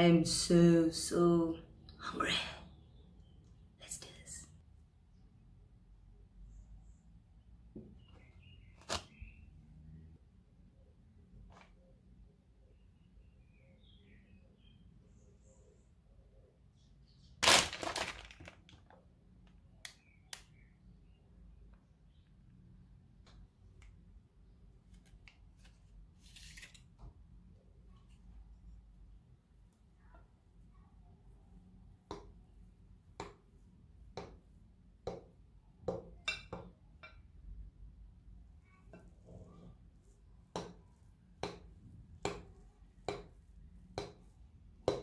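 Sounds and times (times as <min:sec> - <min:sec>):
plastic packet crinkling: 0:17.4 - 0:19.0.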